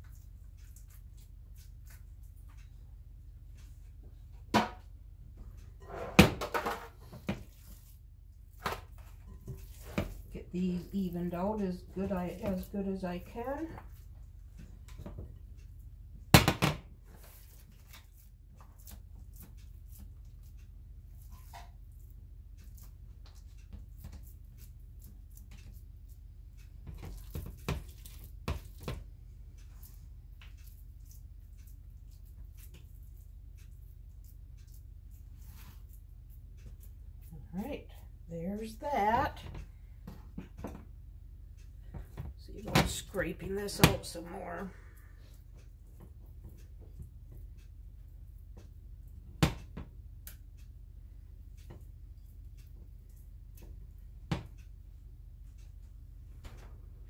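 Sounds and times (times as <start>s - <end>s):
hands mixing meat in bowl: 0.0s - 2.6s, 7.3s - 14.2s, 17.2s - 20.6s, 21.2s - 26.2s, 26.9s - 29.0s
steady low hum: 0.0s - 57.0s
hands squishing meat mix: 26.9s - 29.0s.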